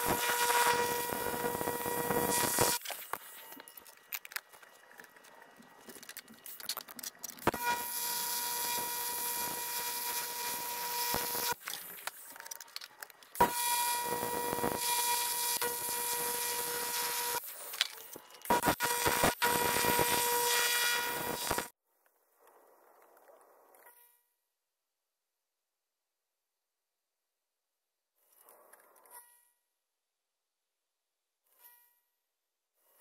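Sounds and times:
welding arc buzzing hiss: 0.0s - 3.6s, 7.4s - 12.2s, 13.4s - 21.7s.

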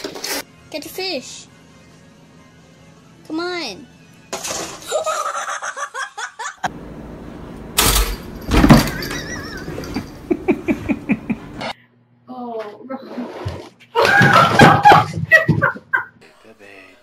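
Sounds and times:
woman laughing: 4.9s - 6.7s, 9.0s - 11.7s, 14.0s - 16.2s.

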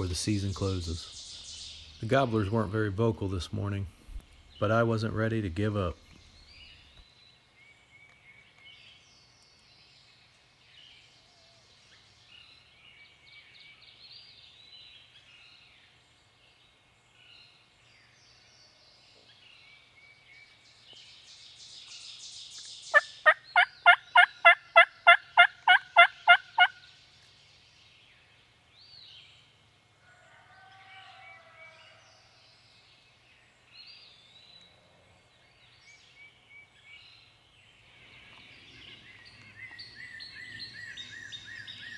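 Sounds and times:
songbirds singing: 0.0s - 41.9s
turkey yelps: 23.0s - 26.8s.

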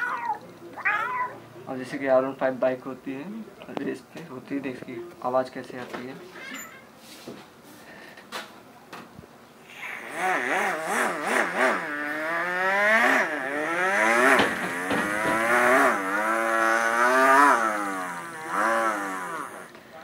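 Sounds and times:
man imitating motorcycle revving: 9.9s - 19.7s.

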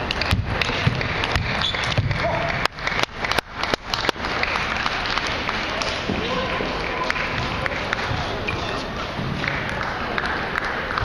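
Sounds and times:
distant table tennis rallies: 0.0s - 3.1s
murmur of voices: 4.2s - 11.0s.

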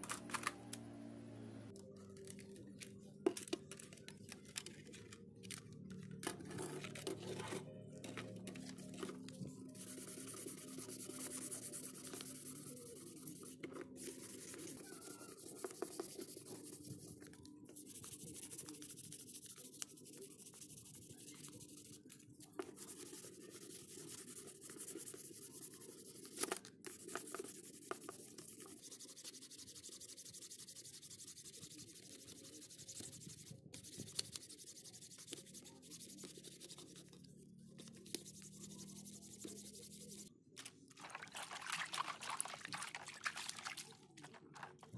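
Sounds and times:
sandpaper rubbing on plastic: 9.8s - 17.1s, 22.7s - 37.2s, 38.0s - 40.3s.

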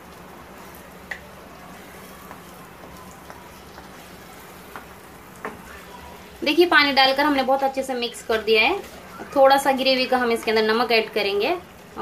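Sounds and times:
gravy simmering softly: 0.0s - 12.0s
spatula stirring curry in pan: 1.7s - 5.7s.

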